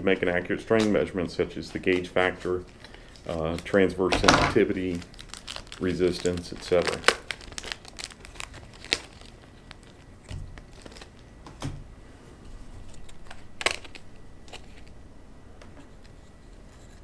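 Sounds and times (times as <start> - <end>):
packaging crinkling: 0.2 - 11.4, 12.8 - 15.0.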